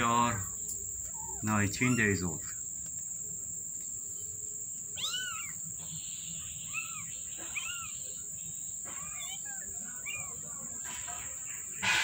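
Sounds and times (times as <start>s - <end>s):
crickets chirring: 0.0s - 12.0s
kittens mewing: 1.0s - 2.6s, 4.9s - 11.1s.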